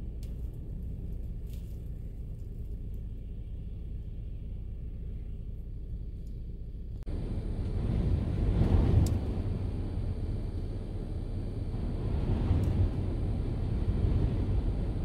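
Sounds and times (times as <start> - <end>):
strong wind rumbling: 7.0 - 15.0.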